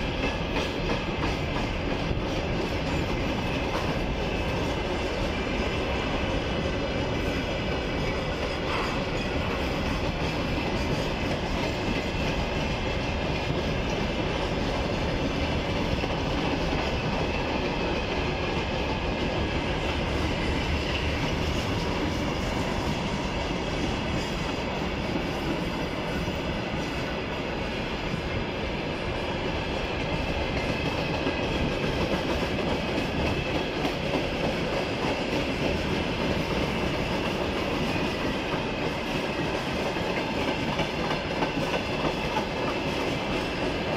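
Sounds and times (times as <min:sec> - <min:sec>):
freight train wheels rumbling: 0:00.0 - 0:43.9.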